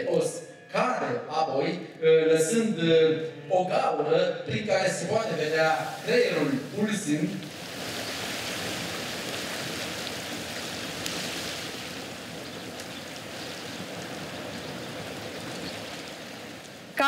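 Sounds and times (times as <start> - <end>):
surf washing over pebbles: 5.1 - 17.0.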